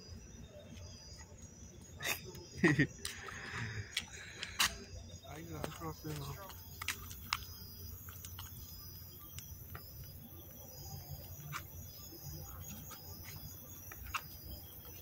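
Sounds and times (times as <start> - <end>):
night insects chorus: 0.0 - 15.0.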